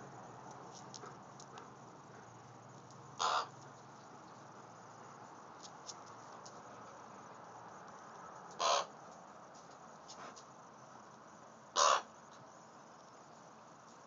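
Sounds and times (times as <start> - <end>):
crow cawing: 3.2 - 3.5, 8.6 - 8.9, 11.8 - 12.1.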